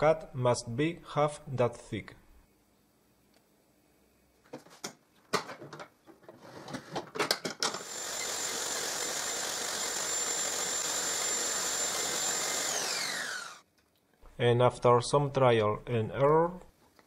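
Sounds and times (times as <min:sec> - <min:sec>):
table saw motor whining: 0:07.8 - 0:13.6.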